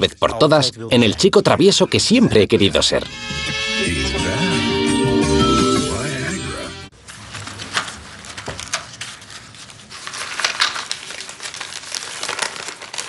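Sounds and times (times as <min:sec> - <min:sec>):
music track: 0:02.6 - 0:06.9
paper and card rustling: 0:06.9 - 0:13.0.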